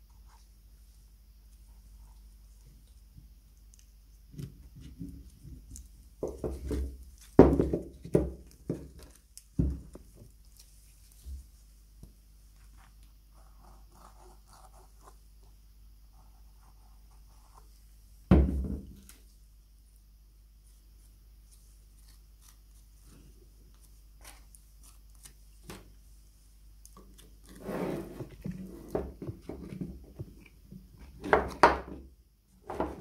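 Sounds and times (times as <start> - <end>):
objects knocking and clattering: 6.2 - 9.0.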